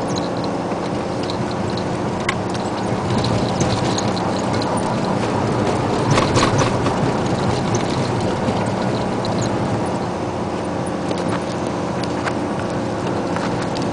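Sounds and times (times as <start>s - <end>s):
small clicks and rattles: 0.0s - 10.1s
truck diesel engine running: 0.0s - 13.9s
tyre and road noise: 0.0s - 13.9s.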